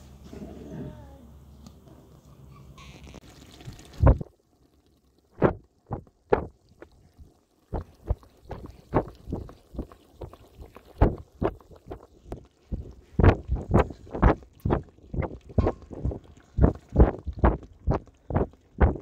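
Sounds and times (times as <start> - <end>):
stew bubbling with soft plops: 2.8 - 19.0.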